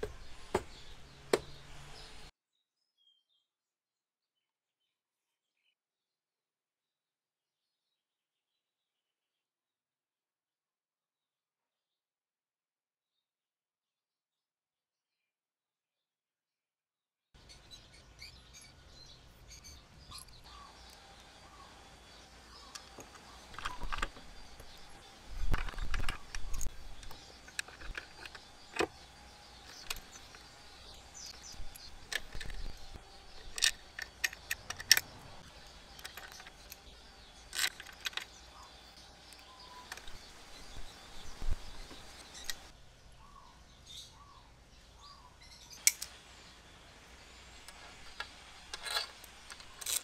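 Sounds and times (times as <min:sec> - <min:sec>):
metallic clinks of bolts and tools: 0:48.1 - 0:50.0.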